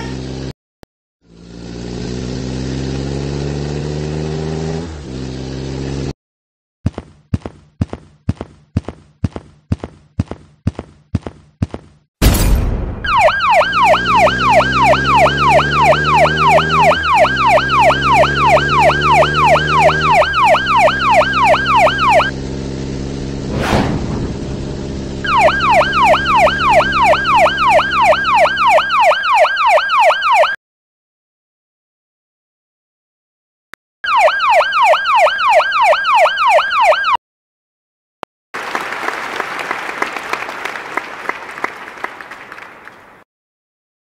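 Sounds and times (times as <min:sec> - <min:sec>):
vehicle engine: 0:00.0 - 0:00.5, 0:01.2 - 0:06.1, 0:13.2 - 0:29.2
police siren wailing: 0:13.0 - 0:22.4, 0:25.2 - 0:30.6, 0:34.0 - 0:37.2
loud crash: 0:23.4 - 0:25.0
sharp bang: 0:23.5 - 0:24.8.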